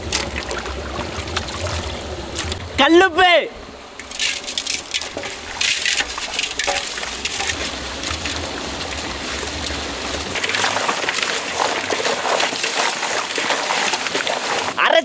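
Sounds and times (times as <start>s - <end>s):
running stream: 0.0s - 15.0s
fish pieces clattering in metal pot: 4.0s - 8.4s, 10.2s - 14.8s.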